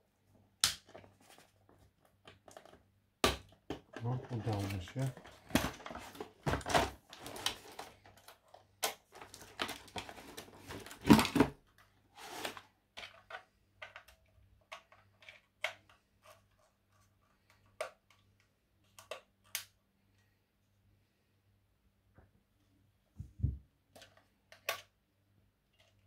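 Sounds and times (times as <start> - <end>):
cardboard and plastic rustling: 0.9 - 2.9, 3.6 - 17.7
box thud: 5.4 - 7.0, 10.7 - 11.6.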